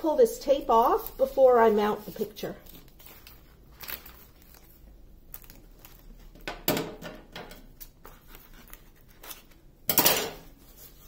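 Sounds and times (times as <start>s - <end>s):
paper crinkling: 0.7s - 6.4s, 7.8s - 9.6s.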